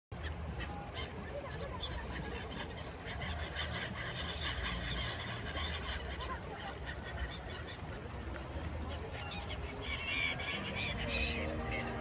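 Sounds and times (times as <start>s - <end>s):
flock of birds calling: 0.2s - 12.0s.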